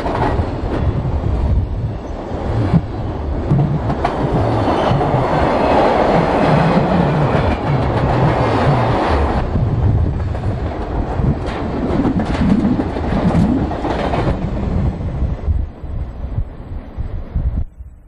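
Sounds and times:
wheels clicking over rail joints: 0.0s - 1.1s, 2.4s - 14.5s
freight train rolling past: 0.0s - 17.9s.

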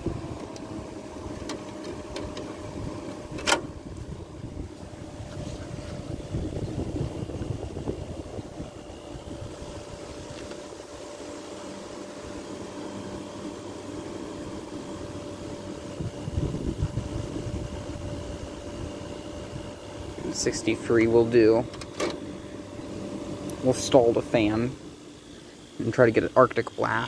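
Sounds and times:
air conditioner humming: 0.0s - 27.0s
low rumbles: 1.2s - 10.5s.

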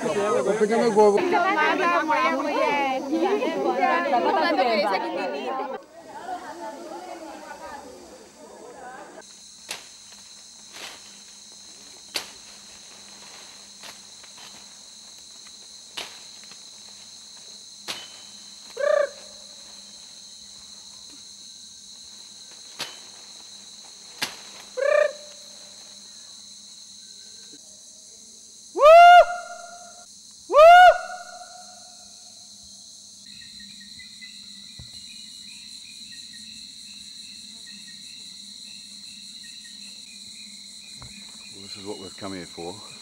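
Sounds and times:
high insect drone: 0.0s - 43.0s
hoot-like animal calls: 18.8s - 19.4s, 24.8s - 25.4s.

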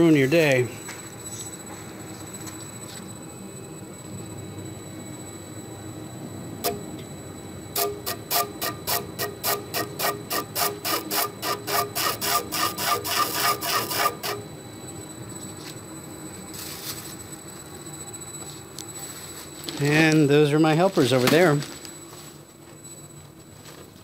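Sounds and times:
lathe motor humming: 6.4s - 15.3s
pencil ticking on spinning wood: 7.8s - 14.4s.

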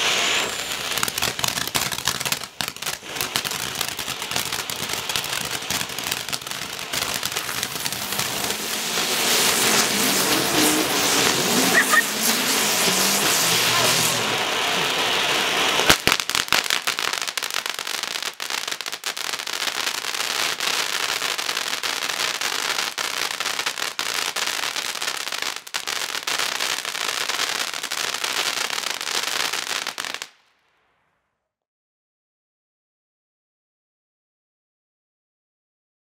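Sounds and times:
sharp firework cracks: 0.0s - 22.4s
firework fountain hissing and crackling: 0.0s - 30.4s.

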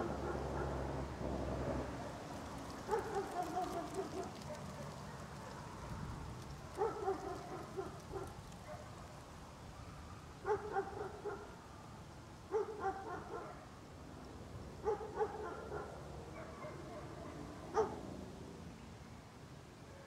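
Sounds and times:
dog barking: 2.9s - 5.6s, 6.8s - 8.9s, 10.4s - 11.6s, 12.5s - 13.7s, 14.8s - 18.0s.

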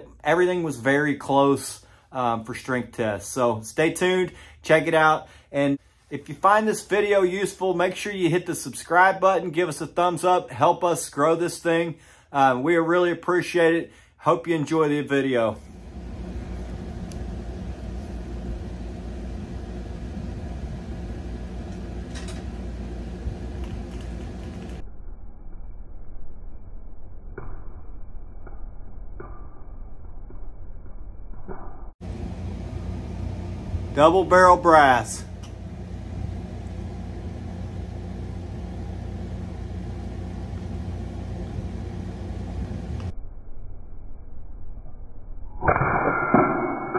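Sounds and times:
low machine hum: 0.0s - 27.1s, 32.0s - 45.6s.

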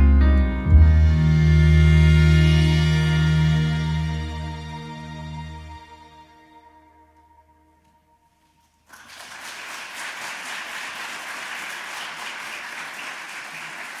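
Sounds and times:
audience applauding: 8.9s - 14.0s.

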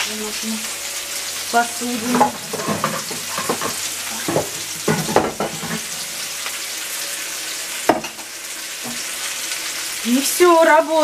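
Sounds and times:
vegetables sizzling in a frying pan: 0.0s - 11.0s
clattering knocks: 2.1s - 5.9s.

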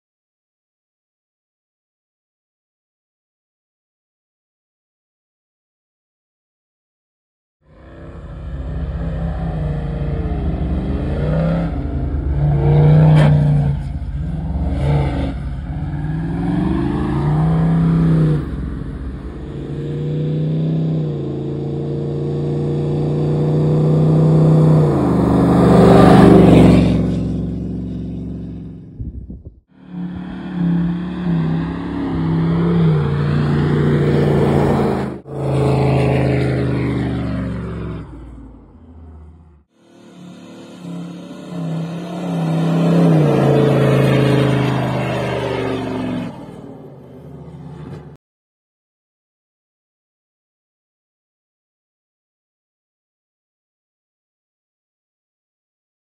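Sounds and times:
vehicle engine revving: 7.7s - 48.2s.

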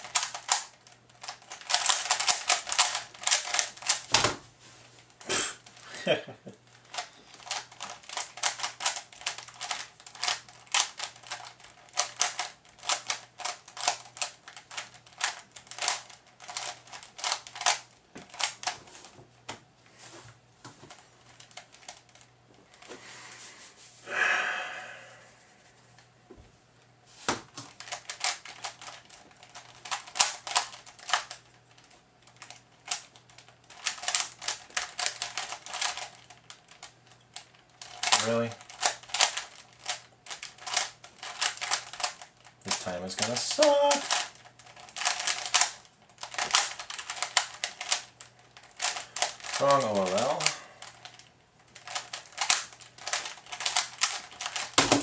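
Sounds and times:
speed cube clicking: 0.0s - 4.1s, 6.8s - 18.7s, 27.6s - 55.0s
breathy rush: 23.0s - 25.8s.

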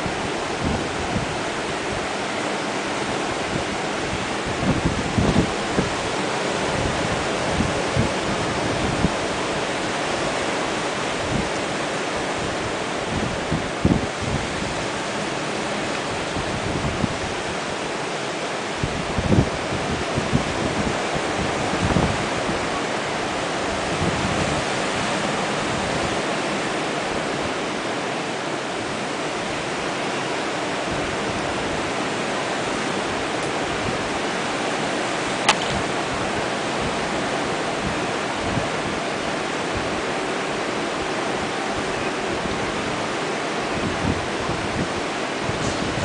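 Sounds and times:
wind bumps on microphone: 0.0s - 2.1s, 3.2s - 9.9s, 11.0s - 17.7s, 18.7s - 22.8s, 23.4s - 26.3s, 35.2s - 40.1s, 43.7s - 46.0s
ocean surf breaking: 0.0s - 46.0s
sharp click: 35.5s - 35.8s.

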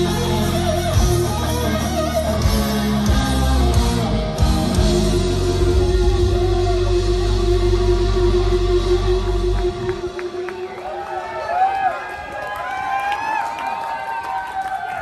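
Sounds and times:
live heavy metal band: 0.0s - 11.7s.

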